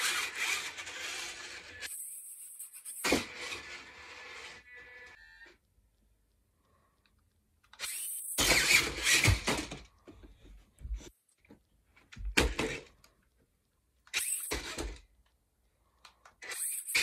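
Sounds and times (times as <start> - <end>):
toy truck electric motors running: 0.0 - 5.5, 7.8 - 9.8, 16.3 - 17.0.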